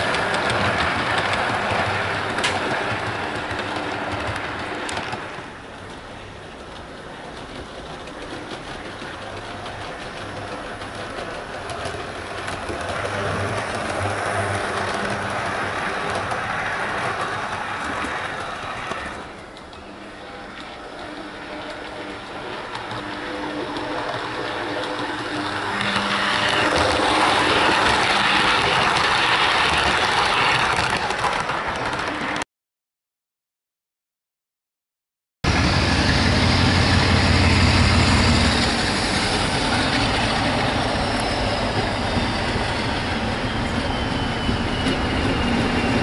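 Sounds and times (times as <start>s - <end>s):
wheel noise: 0.0s - 32.4s.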